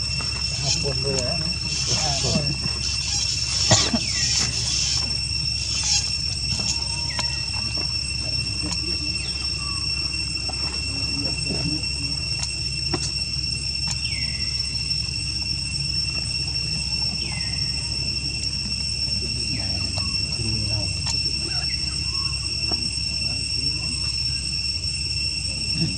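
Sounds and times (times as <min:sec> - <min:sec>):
downward sliding calls: 0:00.0 - 0:11.1
insects droning: 0:00.0 - 0:25.9
low steady rumble: 0:00.0 - 0:25.9.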